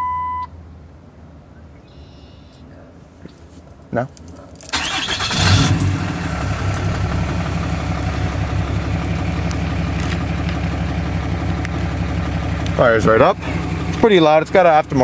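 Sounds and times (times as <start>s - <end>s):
diesel engine starting and idling: 4.6s - 15.0s.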